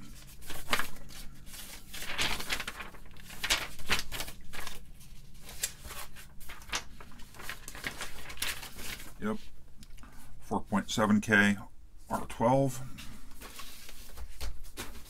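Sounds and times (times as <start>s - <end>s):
paper rustling: 0.0s - 9.6s, 13.0s - 15.0s.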